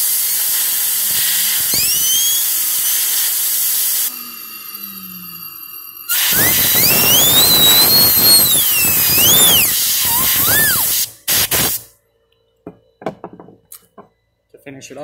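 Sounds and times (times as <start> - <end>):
compressed air blow gun hissing: 0.0 - 4.1, 6.1 - 11.9
whistling whine: 0.1 - 13.0
short puffs of air: 6.1 - 11.9.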